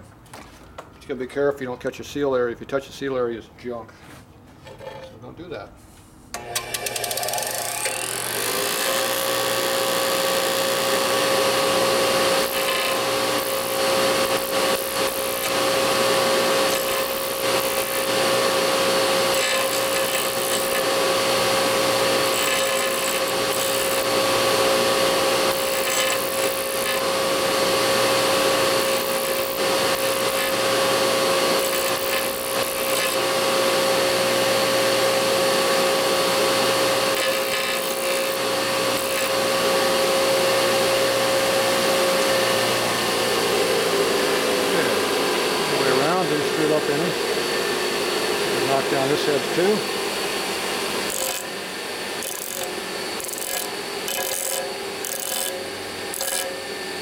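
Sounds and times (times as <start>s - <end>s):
disc sander motor hum: 6.4s - 57.0s
metal grinding on sanding disc: 6.8s - 34.3s, 51.0s - 51.5s, 52.2s - 56.6s.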